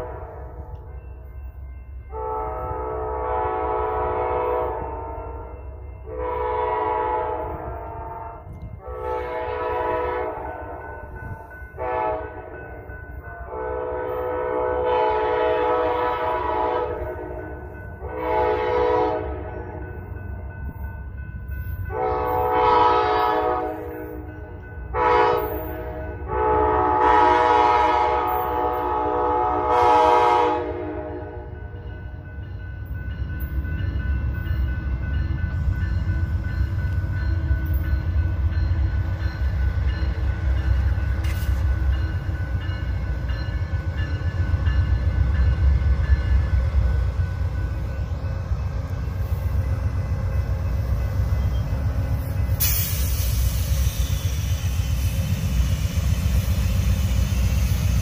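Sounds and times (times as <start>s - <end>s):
locomotive air horn blasts: 0.0s - 0.7s, 2.1s - 11.0s, 11.8s - 12.6s, 13.5s - 20.0s, 21.9s - 31.8s
low train rumble: 0.0s - 58.0s.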